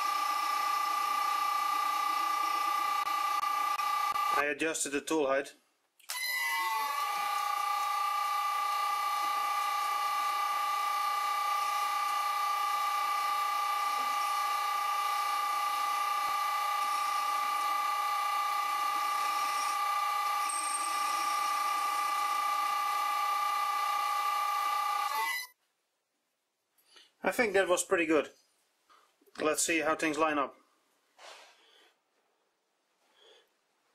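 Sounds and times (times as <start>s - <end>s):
lathe motor whining: 0.0s - 4.4s, 6.1s - 25.5s.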